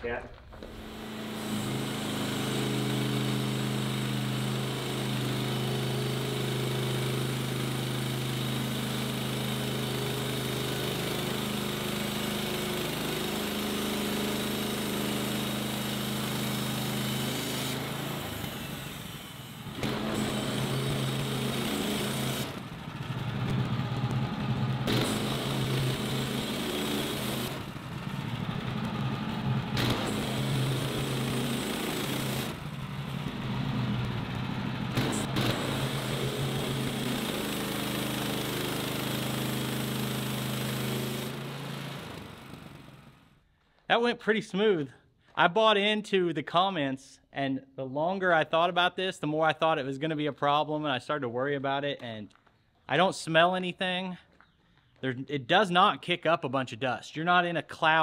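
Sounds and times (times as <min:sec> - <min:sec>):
band saw cutting wood: 0:00.7 - 0:43.1
gasoline engine running: 0:19.6 - 0:43.0.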